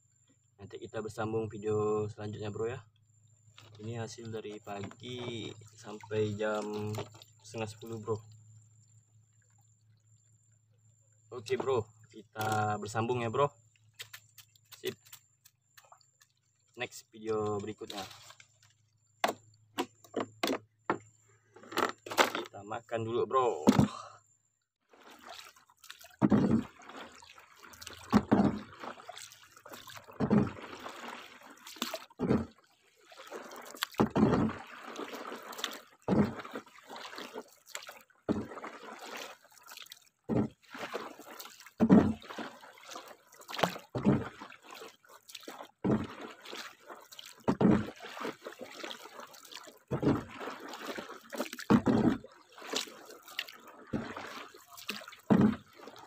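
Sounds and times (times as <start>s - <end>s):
paddle splashing through water: 3.6s - 8.2s, 17.3s - 18.6s, 24.9s - 56.0s
water trickling: 3.6s - 10.2s, 11.4s - 18.7s, 24.9s - 56.0s.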